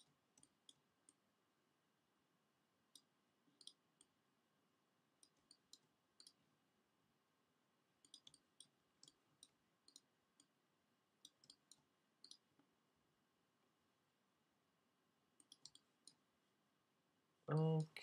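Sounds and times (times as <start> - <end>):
mouse and keyboard clicks: 0.0 - 1.2, 2.9 - 4.2, 5.2 - 6.4, 8.0 - 10.6, 11.2 - 12.5, 15.4 - 16.2.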